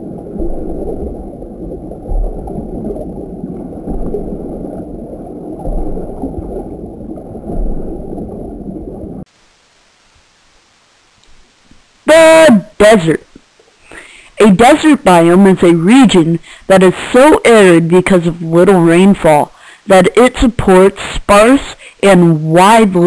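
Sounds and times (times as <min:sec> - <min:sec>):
ocean water rushing: 0:00.0 - 0:09.3.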